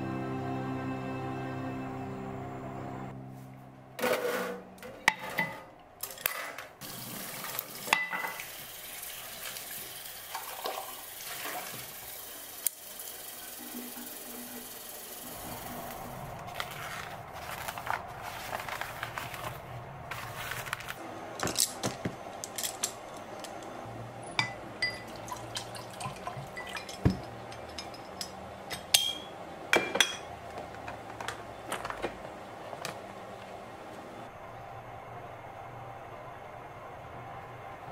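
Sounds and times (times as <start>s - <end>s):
glass and brushes clinking: 24.4s - 30.3s
water splashing and dripping: 25.1s - 27.4s.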